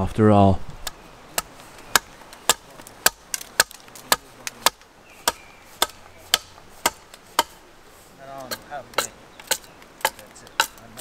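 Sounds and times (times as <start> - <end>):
axe chopping wood: 1.3 - 7.6, 8.4 - 10.8.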